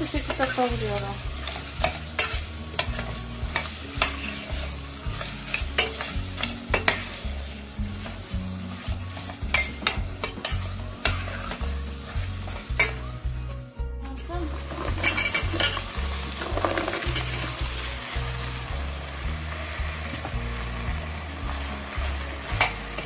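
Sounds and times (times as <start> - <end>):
food sizzling in a pot: 0.0 - 23.0
metal spoon scraping a pot: 0.1 - 7.2, 9.1 - 11.6, 14.7 - 17.6.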